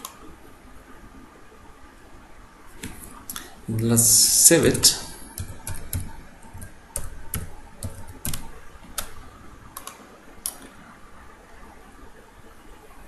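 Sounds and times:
computer keyboard keys clicking: 0:05.3 - 0:09.2.

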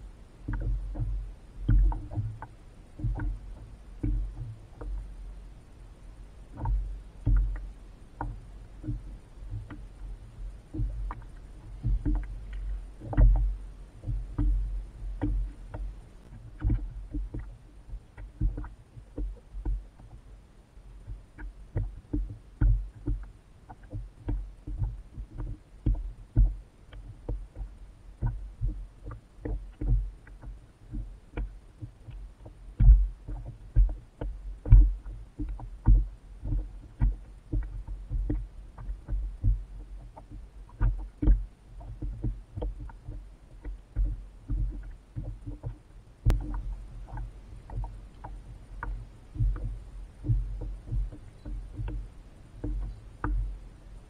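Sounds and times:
water slapping against hull: 0:00.0 - 0:54.0
small sharp clicks: 0:21.0 - 0:53.6.

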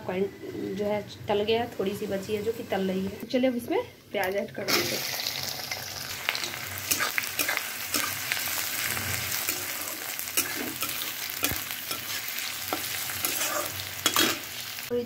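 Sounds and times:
onions sizzling in hot oil: 0:04.2 - 0:15.0.

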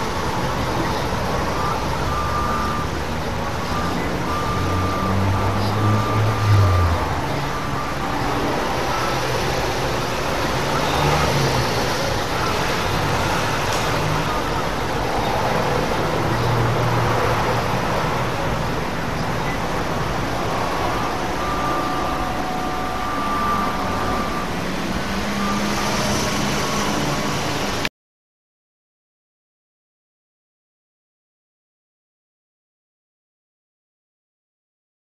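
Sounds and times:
passing vehicles rumbling: 0:00.0 - 0:27.9
traffic noise: 0:00.0 - 0:27.9.

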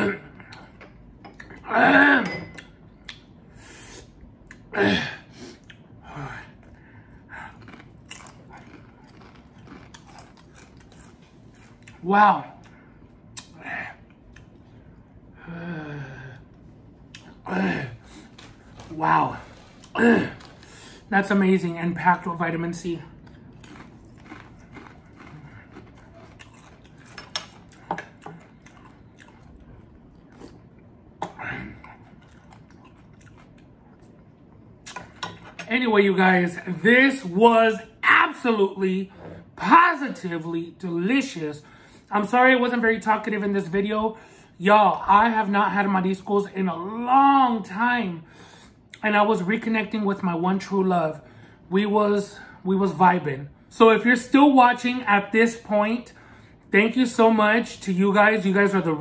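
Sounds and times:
chewing: 0:07.4 - 0:12.0, 0:23.2 - 0:35.6.

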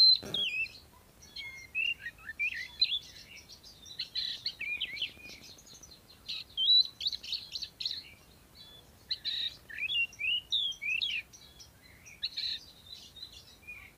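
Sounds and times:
bird chattering: 0:00.0 - 0:00.7
bird singing whistled notes: 0:00.0 - 0:13.9.

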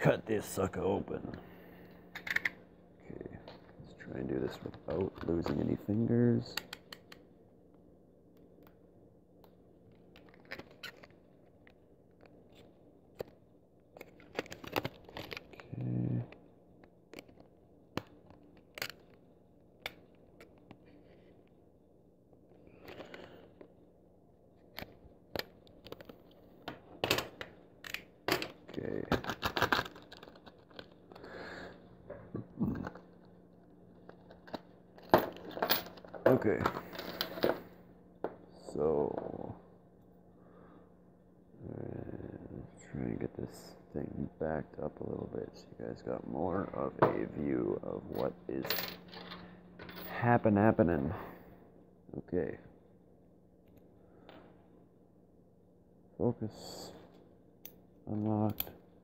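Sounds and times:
low steady hum: 0:00.0 - 0:59.0
plastic packaging crackling: 0:28.9 - 0:31.2.

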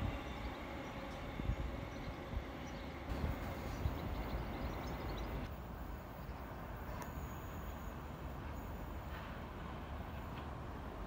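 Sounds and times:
distant traffic: 0:00.0 - 0:11.0
wind: 0:00.0 - 0:11.0.

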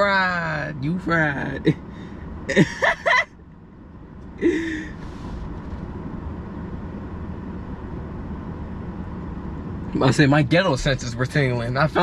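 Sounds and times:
low hum inside car cabin: 0:00.0 - 0:12.0
man laughing or gasping: 0:04.4 - 0:05.0.

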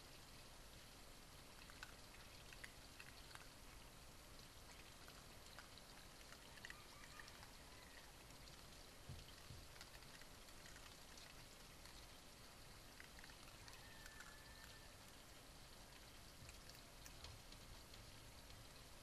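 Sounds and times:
low hiss: 0:00.0 - 0:19.0
faint small clicks: 0:13.0 - 0:14.9, 0:16.0 - 0:18.8.

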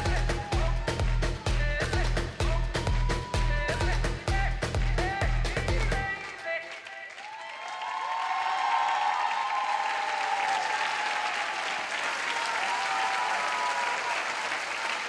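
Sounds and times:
people cheering: 0:00.0 - 0:04.2, 0:06.1 - 0:15.0
audience applauding: 0:06.0 - 0:15.0.

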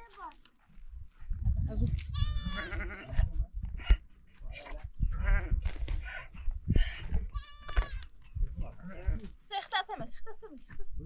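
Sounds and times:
goats bleating: 0:02.0 - 0:03.2, 0:05.1 - 0:05.6, 0:06.8 - 0:08.1.

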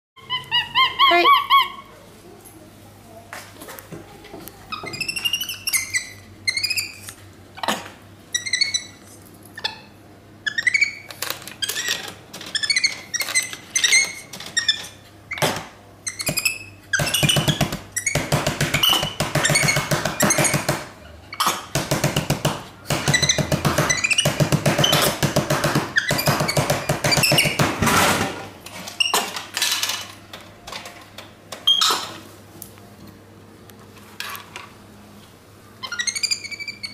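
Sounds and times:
monkey squeaky chirps: 0:00.2 - 0:01.9, 0:04.7 - 0:07.1, 0:08.3 - 0:11.1, 0:35.8 - 0:36.9.

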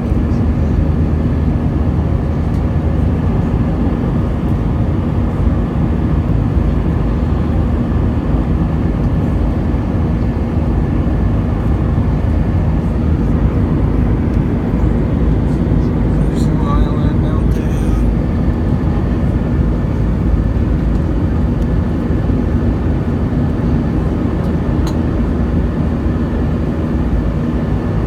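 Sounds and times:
jet engine roar in cabin: 0:00.0 - 0:28.0.

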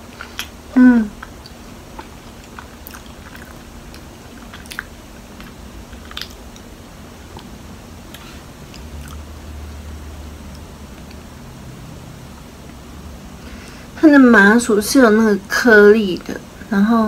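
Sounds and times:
person chewing: 0:00.0 - 0:09.2.

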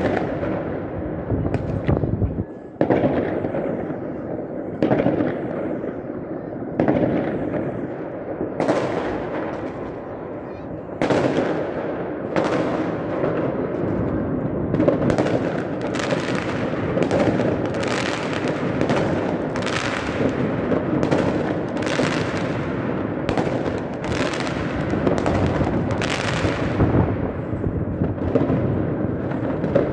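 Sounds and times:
sharp firework cracks: 0:00.0 - 0:00.7, 0:11.0 - 0:29.9
fireworks rumbling bangs: 0:00.0 - 0:29.9.

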